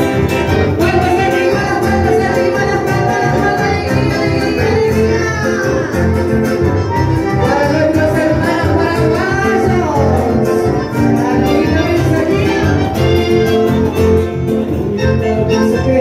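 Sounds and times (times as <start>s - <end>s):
accordions: 0.0s - 16.0s
acoustic guitar: 0.0s - 16.0s
electric bass: 0.0s - 16.0s
woman singing: 0.7s - 6.2s, 7.3s - 10.6s, 11.2s - 13.0s, 14.7s - 16.0s.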